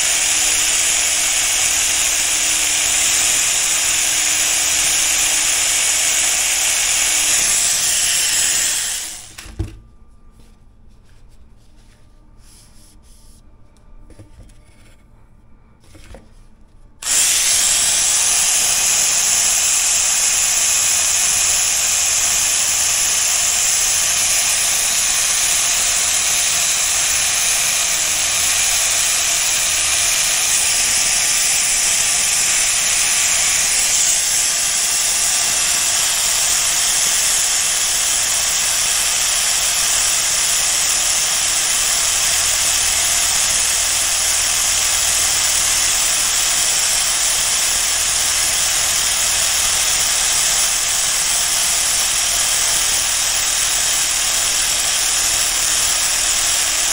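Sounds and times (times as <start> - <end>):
power tool hissing: 0.0 - 9.5, 17.0 - 56.9
faint handling sounds: 9.8 - 17.0.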